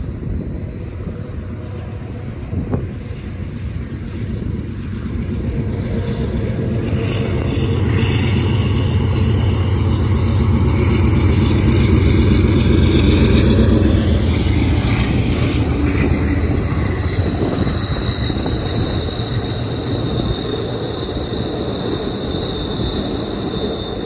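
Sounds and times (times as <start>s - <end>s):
train engine and rail rumble: 0.0s - 24.0s
high wheel squeal: 4.9s - 24.0s.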